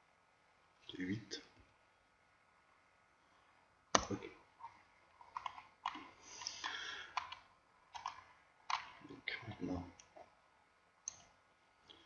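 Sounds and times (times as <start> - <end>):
computer mouse and keyboard clicks: 5.2 - 10.2.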